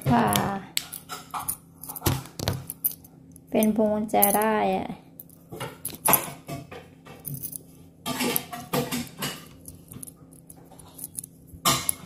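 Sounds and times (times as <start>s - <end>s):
metal tools clicking and jingling: 0.3s - 4.6s, 7.2s - 12.0s.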